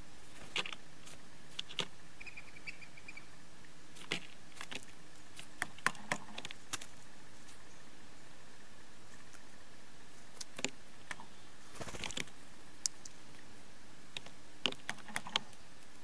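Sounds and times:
high bird notes: 0:02.2 - 0:03.4.

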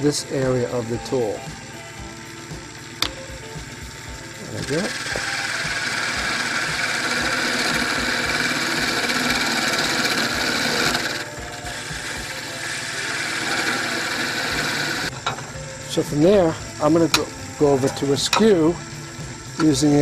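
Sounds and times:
lathe low hum: 0:00.0 - 0:20.0
gouge shaving wood hiss: 0:03.6 - 0:15.1.

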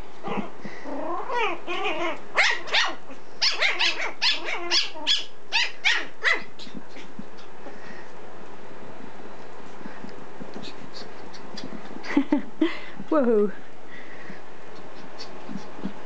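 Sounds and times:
puppy yapping: 0:01.2 - 0:06.7.

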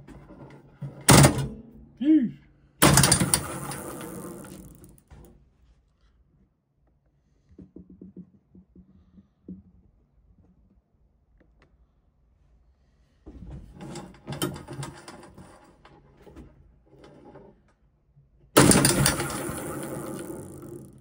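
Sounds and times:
metal spring clicks and rattles: 0:18.6 - 0:21.0.

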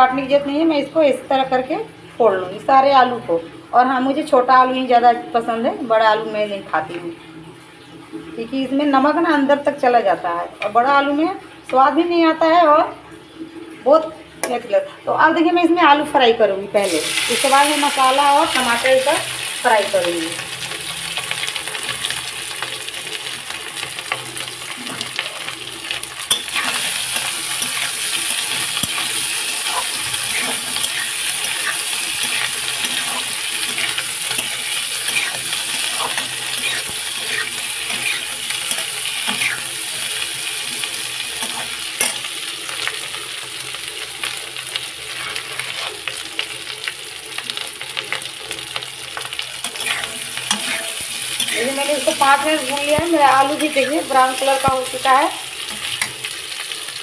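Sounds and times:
potatoes sizzling in oil: 0:00.0 - 0:57.0
metal spatula scraping a pan: 0:23.8 - 0:43.0, 0:45.1 - 0:46.1, 0:49.6 - 0:54.6.

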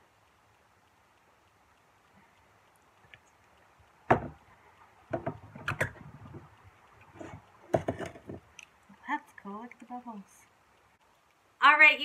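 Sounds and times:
glass knocking on wooden table: 0:04.1 - 0:04.4.

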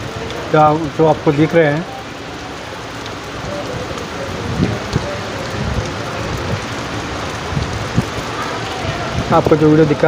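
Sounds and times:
steady rain in strong wind: 0:00.0 - 0:10.0
wind gusts thumping microphone: 0:03.3 - 0:10.0.

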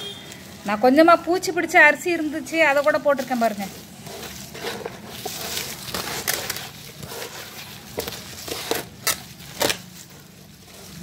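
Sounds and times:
rustling and crunching of dry leaves: 0:00.2 - 0:11.0.

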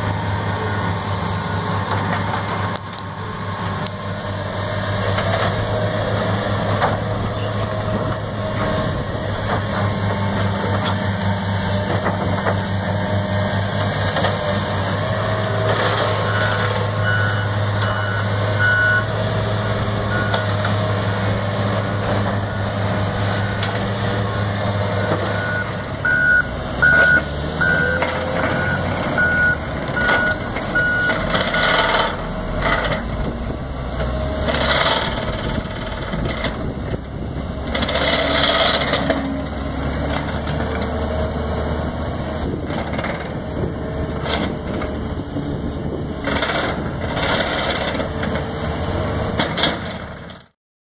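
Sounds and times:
diesel construction machines running: 0:00.0 - 0:50.6
wheel loader working dirt: 0:00.0 - 0:50.6
backup alarm beeping: 0:16.3 - 0:19.1, 0:25.0 - 0:31.2.

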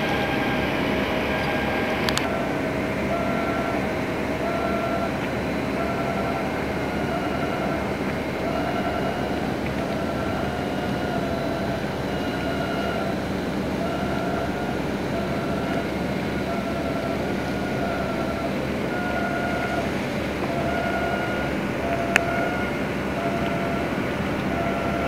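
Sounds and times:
boat engine drone: 0:00.0 - 0:25.0
whining tone: 0:00.0 - 0:25.0.

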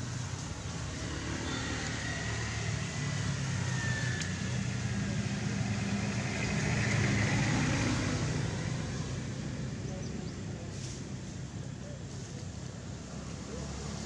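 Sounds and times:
vehicle engine humming: 0:00.0 - 0:14.0.

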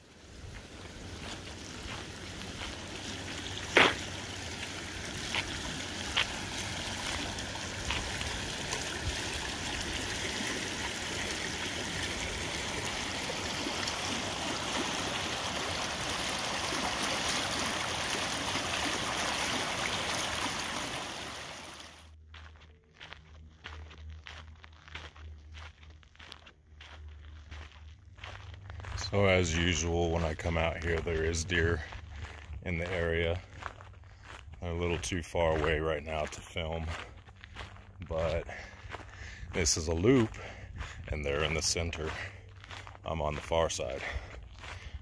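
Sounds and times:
creek water rushing: 0:00.0 - 0:22.1.

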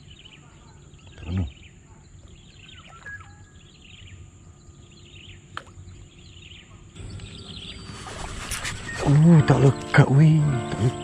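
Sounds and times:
small birds chirping: 0:00.0 - 0:11.0
steady high thin hum: 0:07.0 - 0:11.0.

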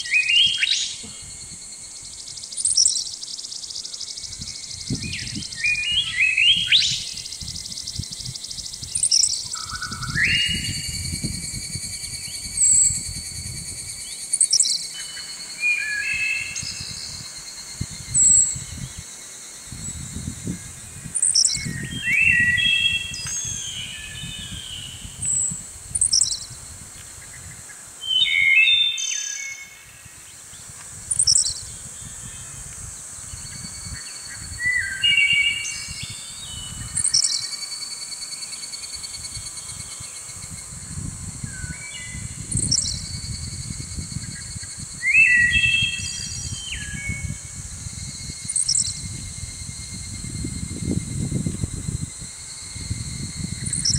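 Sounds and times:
songbirds singing: 0:00.0 - 0:53.9.

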